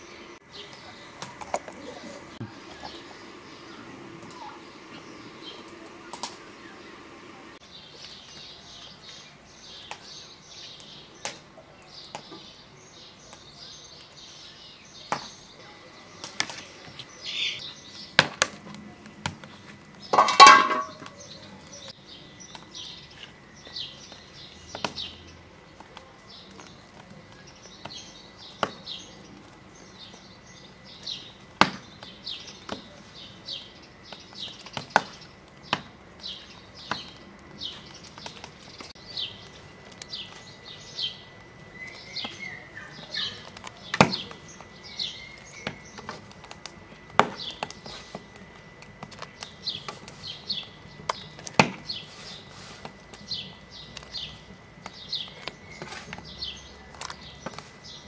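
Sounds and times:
small birds chirping: 0.0 - 58.0
metal pot lid clatter: 20.2 - 21.0.

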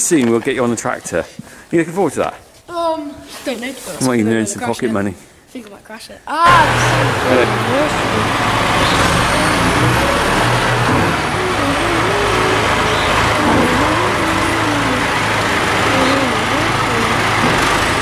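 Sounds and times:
tractor diesel engine running: 6.5 - 18.0
wavering whine: 6.6 - 17.4.

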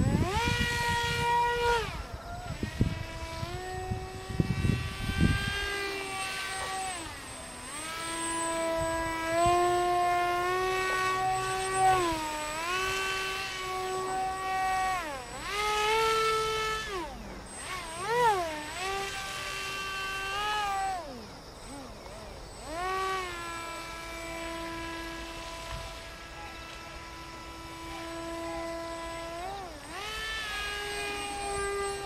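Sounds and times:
low wind buffeting: 0.0 - 7.7
model plane motor whining: 0.0 - 32.0.

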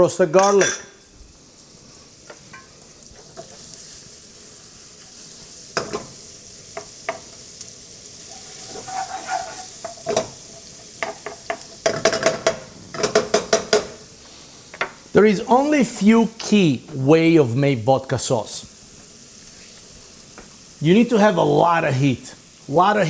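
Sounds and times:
butter and garlic sizzling in a pan: 0.0 - 23.0
wooden spoon knocking against pan: 11.0 - 14.0.

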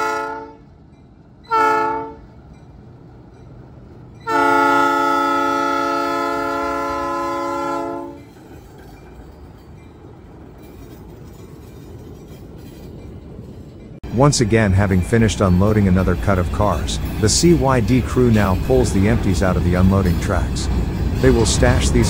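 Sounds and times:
locomotive horn blast: 0.0 - 0.7, 1.5 - 2.3, 4.2 - 8.2
diesel engine rumble: 12.1 - 22.0.

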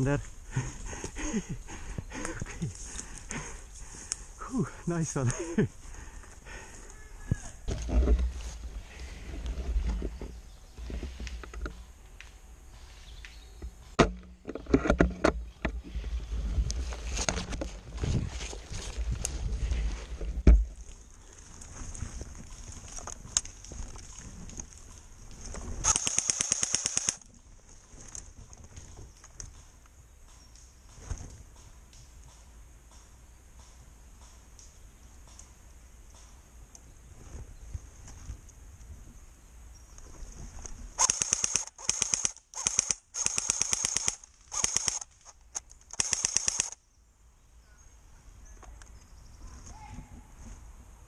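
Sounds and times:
rustling and handling noise: 14.4 - 25.9
airsoft rifle full-auto burst: 25.8 - 27.2, 41.0 - 45.1, 45.9 - 46.8.

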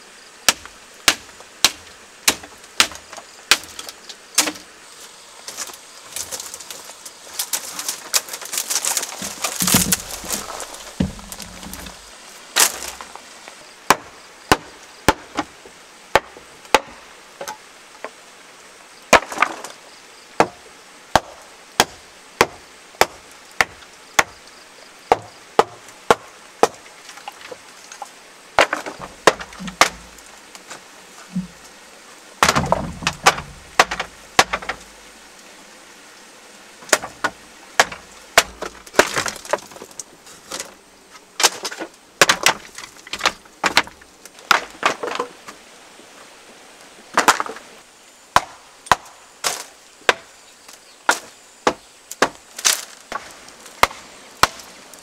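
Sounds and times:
wood crackling and splintering: 0.4 - 18.1, 19.1 - 19.8, 25.1 - 31.8, 32.4 - 35.5, 36.8 - 45.6, 47.1 - 55.0
wooden knocks and cracks: 0.5 - 4.6, 5.5 - 13.2, 19.1 - 19.8, 25.1 - 31.7, 32.4 - 34.9, 36.8 - 40.8, 41.4 - 45.6, 47.1 - 47.7, 48.4 - 54.7.

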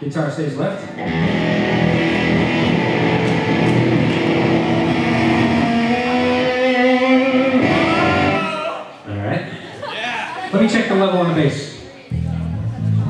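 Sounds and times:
electric guitar through amplifier: 0.8 - 8.6.

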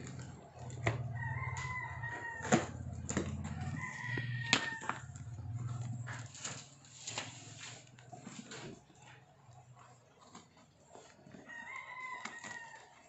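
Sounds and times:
scissors cutting cardboard: 0.0 - 13.0
rooster crowing: 0.7 - 6.2, 11.4 - 13.0.

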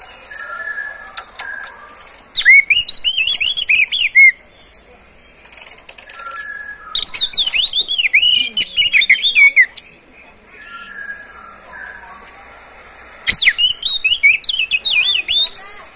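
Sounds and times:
bird singing whistled notes: 2.4 - 4.9, 6.1 - 10.0, 13.0 - 15.9.

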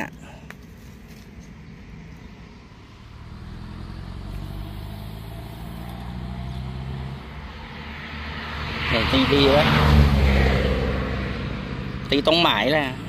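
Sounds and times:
vehicle engine running: 2.8 - 9.6.

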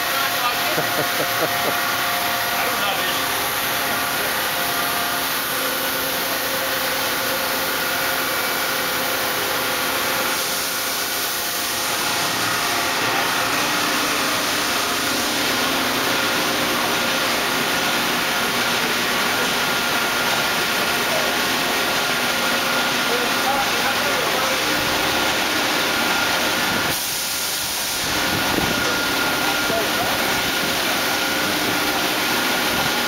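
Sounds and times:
boring mill whining hiss: 0.0 - 33.0.

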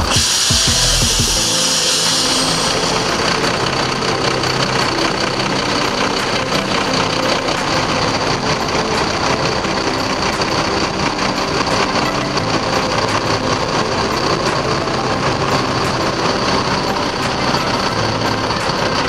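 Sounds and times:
diesel bus engine idling: 0.0 - 19.0.

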